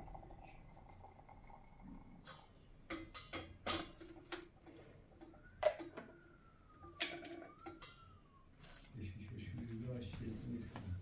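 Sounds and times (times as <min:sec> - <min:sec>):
faint wavering thin tone: 0:05.2 - 0:08.9.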